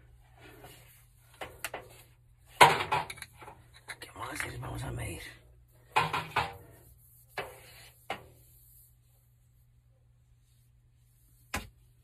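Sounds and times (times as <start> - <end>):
pvc pipe knocks and clacks: 2.6 - 3.6, 5.9 - 6.6.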